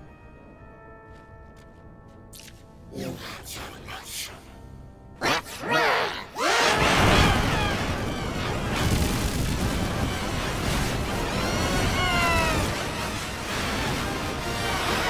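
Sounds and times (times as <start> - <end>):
soundtrack music: 0.0 - 9.0
loud rumbling crash: 6.8 - 14.2.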